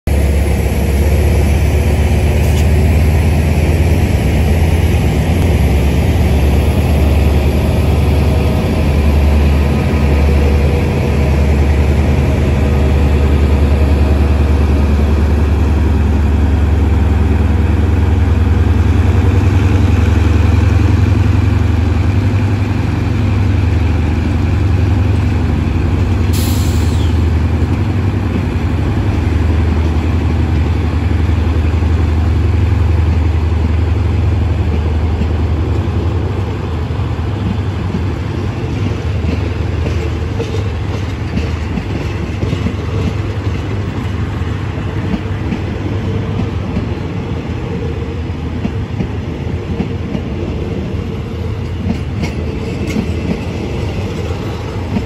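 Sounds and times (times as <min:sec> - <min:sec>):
diesel locomotive engine droning: 0:00.0 - 0:55.0
train carriages rolling by: 0:00.1 - 0:55.0
sharp hiss: 0:26.4 - 0:27.2.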